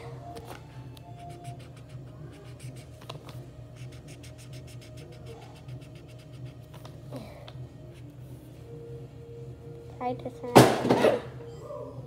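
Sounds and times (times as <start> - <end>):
steady low hum: 0.0 - 12.0
marker scratching on paper: 1.2 - 6.8.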